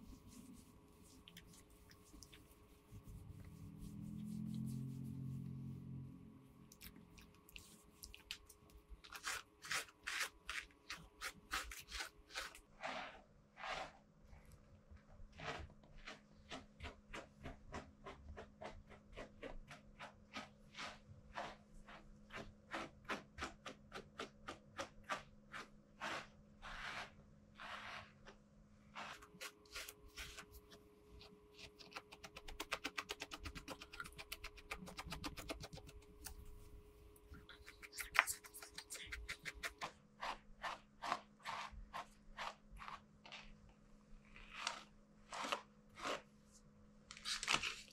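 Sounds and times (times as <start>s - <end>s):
brush stroking dog's coat: 0.0s - 5.8s, 11.8s - 14.0s, 19.5s - 22.9s, 25.5s - 36.7s.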